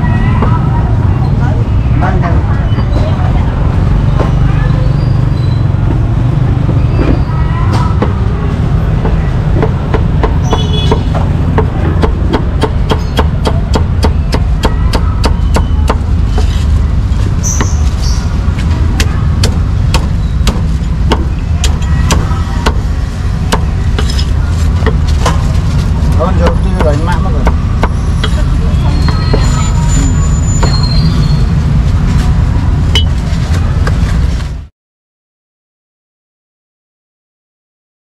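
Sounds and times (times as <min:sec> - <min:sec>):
cleaver chopping on wooden block: 0:09.0 - 0:16.5, 0:19.0 - 0:22.8.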